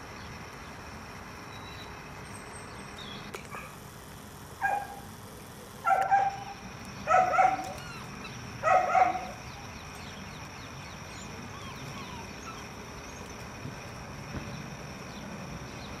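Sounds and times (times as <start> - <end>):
faint bird chirps: 1.5 - 3.4
puppy yapping bark: 4.6 - 5.0, 5.8 - 9.4.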